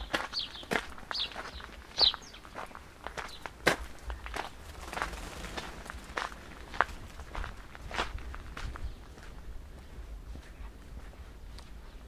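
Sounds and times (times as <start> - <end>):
footsteps on paved path: 0.0 - 12.0
steady low rumble: 2.8 - 11.5.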